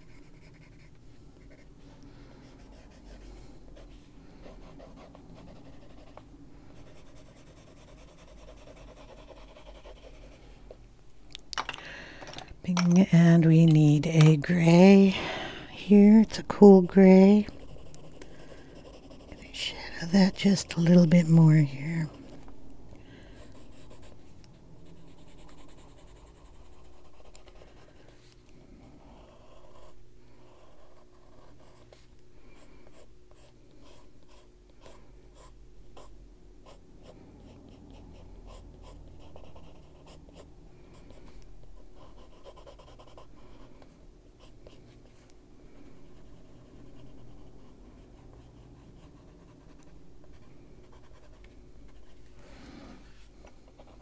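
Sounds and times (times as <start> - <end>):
pencil scratching on paper: 0.0 - 1.7, 2.4 - 6.2, 6.8 - 10.6, 16.7 - 22.3, 24.8 - 28.0, 29.0 - 32.0, 37.9 - 41.3, 42.0 - 43.6, 53.7 - 54.0.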